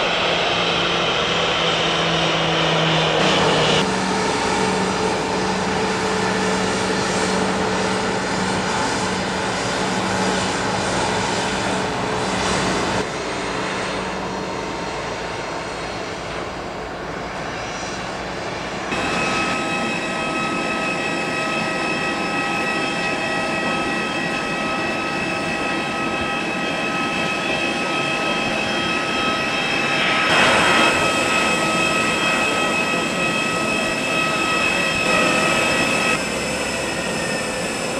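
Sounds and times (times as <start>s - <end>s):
jet arriving on runway: 0.0s - 37.9s
jet engine whine at taxi power: 0.0s - 37.9s
rushing noise: 25.7s - 36.9s.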